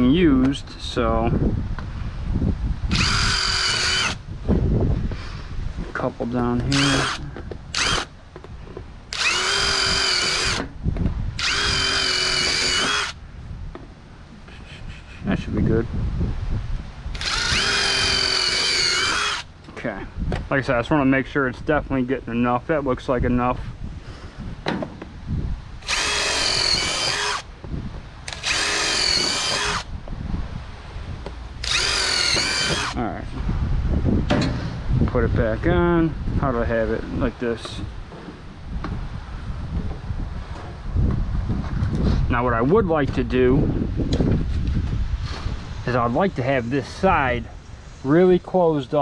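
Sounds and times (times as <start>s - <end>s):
power drill running: 2.9s - 4.2s, 6.7s - 8.1s, 9.1s - 10.7s, 11.4s - 13.2s, 17.1s - 19.5s, 25.8s - 27.5s, 28.3s - 29.9s, 31.6s - 33.0s.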